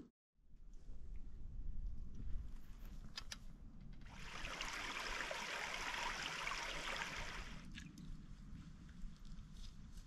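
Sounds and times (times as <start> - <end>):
stream running over rocks: 4.1 - 7.8.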